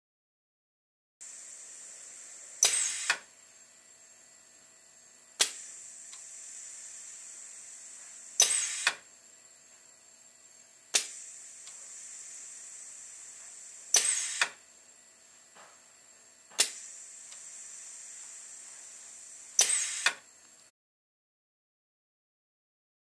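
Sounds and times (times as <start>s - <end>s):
high hiss of air: 1.2s - 3.6s, 5.4s - 9.1s, 10.9s - 14.6s, 16.5s - 20.3s
valve clicking: 1.3s - 3.3s, 5.4s - 9.1s, 10.9s - 14.6s, 16.5s - 20.6s.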